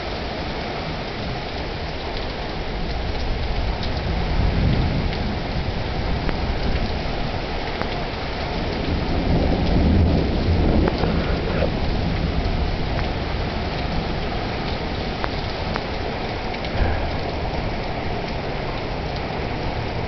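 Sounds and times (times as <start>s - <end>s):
heavy rain pouring: 0.0s - 20.0s
thunder rumbling: 8.2s - 20.0s.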